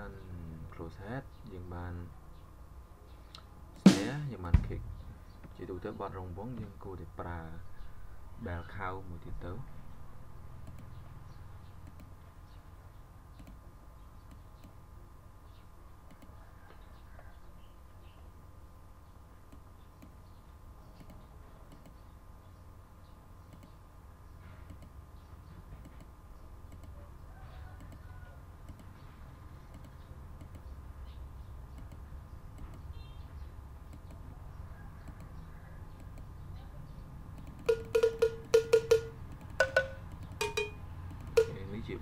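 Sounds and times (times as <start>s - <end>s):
low background hum: 0.0s - 42.0s
mouse clicks: 10.6s - 11.0s, 11.8s - 12.2s, 13.3s - 13.6s, 16.1s - 16.3s, 21.0s - 22.0s, 23.4s - 23.8s, 24.7s - 25.0s, 26.7s - 27.0s, 28.6s - 28.9s, 29.7s - 30.7s, 31.7s - 32.9s, 33.9s - 34.3s, 35.0s - 36.3s
sampled cowbell strikes: 37.7s - 41.7s.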